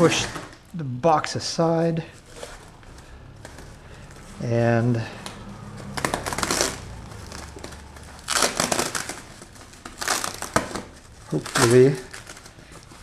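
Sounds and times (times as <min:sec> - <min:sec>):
foam packing wrap crinkling: 0:05.7 - 0:13.0.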